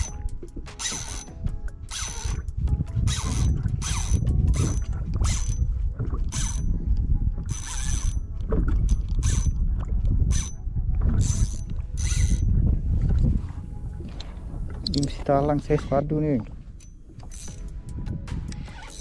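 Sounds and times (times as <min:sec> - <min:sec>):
fishing reel whirring: 0:00.0 - 0:02.5, 0:03.1 - 0:05.6, 0:06.3 - 0:06.7, 0:07.5 - 0:09.6, 0:10.3 - 0:10.6, 0:11.2 - 0:12.5, 0:16.8 - 0:19.0
low rumble: 0:02.4 - 0:14.9.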